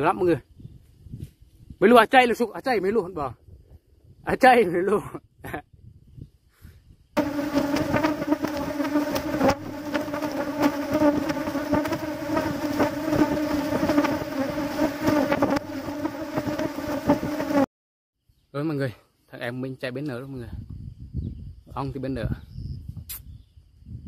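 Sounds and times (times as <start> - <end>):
bees buzzing loudly: 7.2 - 17.7.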